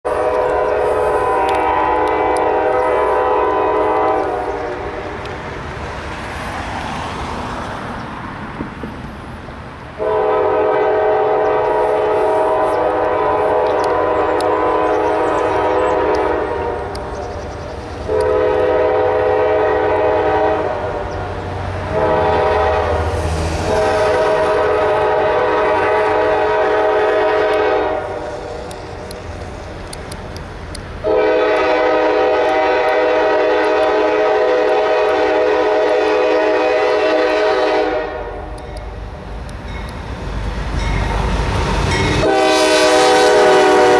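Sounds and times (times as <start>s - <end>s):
locomotive air horn blasts: 0.0s - 5.2s, 10.0s - 17.1s, 18.0s - 21.2s, 21.8s - 28.8s, 31.0s - 38.6s, 42.2s - 43.9s.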